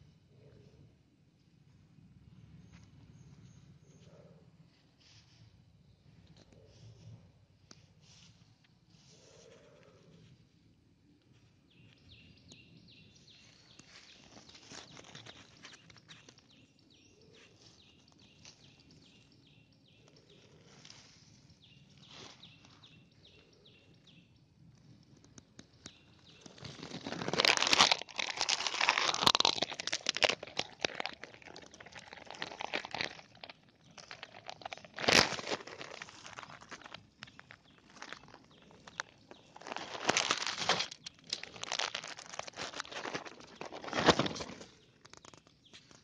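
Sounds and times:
dry leaves rustling and crackling: 0:13.8 - 0:16.4, 0:26.3 - 0:45.4.

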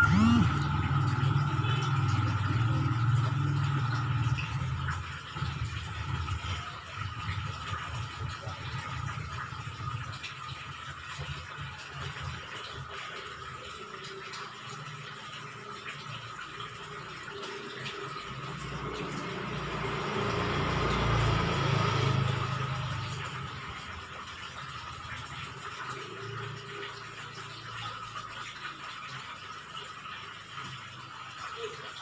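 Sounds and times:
motor vehicle passing by: 0:17.4 - 0:27.5.

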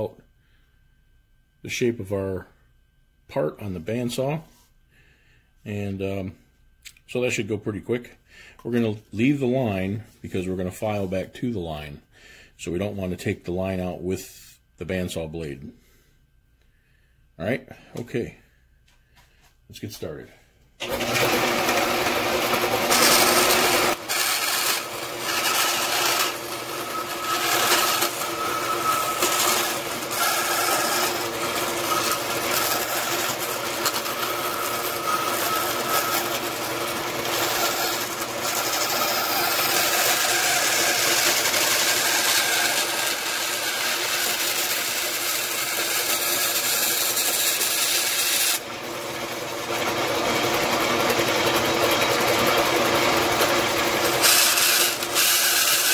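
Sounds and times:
bandsaw running: 0:20.8 - 0:55.9
blade rasping through sheet metal: 0:22.6 - 0:48.7, 0:52.4 - 0:55.9.

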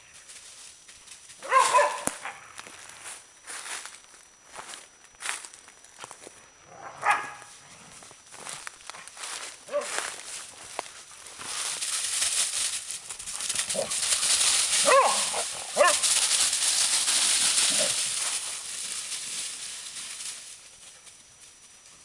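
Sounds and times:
leaves rustling underfoot: 0:00.0 - 0:21.9
dogs barking playfully: 0:01.4 - 0:02.5, 0:06.7 - 0:07.5, 0:09.6 - 0:10.0, 0:14.8 - 0:16.1.

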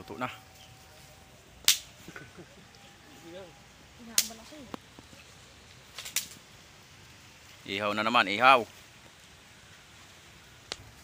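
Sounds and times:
wood fire popping and cracking: 0:01.6 - 0:02.0, 0:04.1 - 0:06.6.

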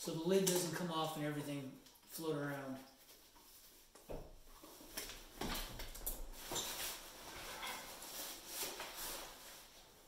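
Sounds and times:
fabric rustling and scraping: 0:04.5 - 0:10.0.

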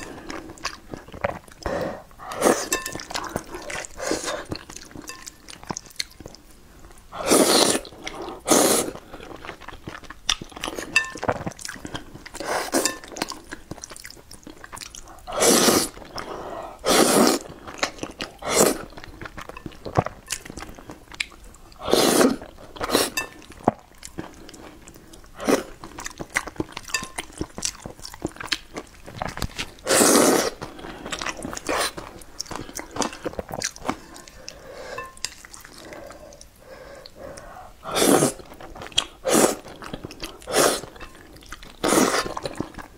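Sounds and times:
wet chewing: 0:00.0 - 0:42.9
slurping noodles: 0:07.2 - 0:09.0, 0:15.2 - 0:16.1, 0:16.7 - 0:17.5, 0:18.3 - 0:18.9, 0:21.8 - 0:23.2, 0:29.8 - 0:30.6, 0:37.8 - 0:38.6, 0:39.2 - 0:39.6, 0:40.4 - 0:41.0, 0:41.8 - 0:42.6.

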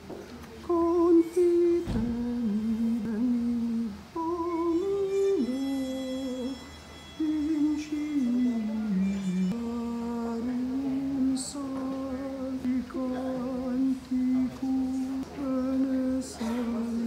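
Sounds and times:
person humming a slow melody: 0:00.7 - 0:17.0
single thump: 0:01.8 - 0:02.2.

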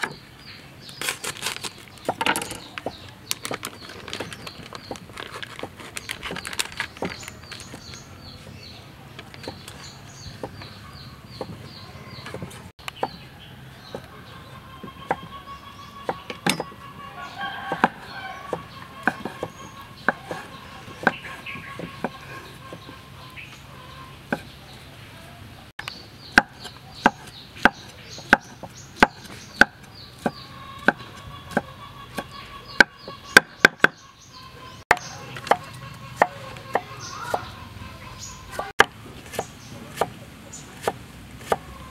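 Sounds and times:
birds calling: 0:00.0 - 0:41.9
cleaver chopping on wooden board: 0:16.0 - 0:16.8, 0:17.7 - 0:22.9, 0:26.3 - 0:34.0, 0:34.9 - 0:37.5, 0:38.5 - 0:40.2, 0:40.8 - 0:41.7.

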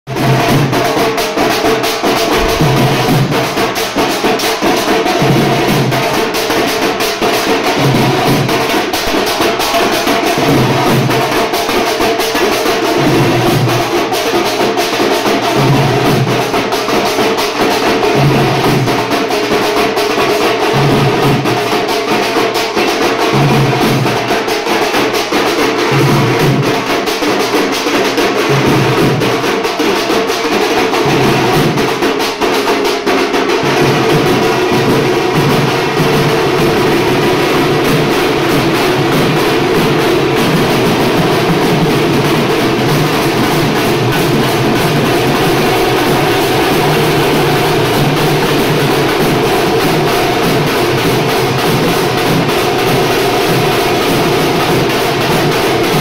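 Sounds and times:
drums beaten with sticks: 0:00.1 - 0:56.0.

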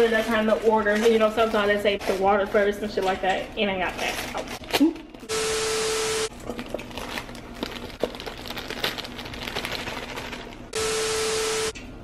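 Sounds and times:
plastic gloves crinkling: 0:00.0 - 0:04.8, 0:06.3 - 0:10.7.

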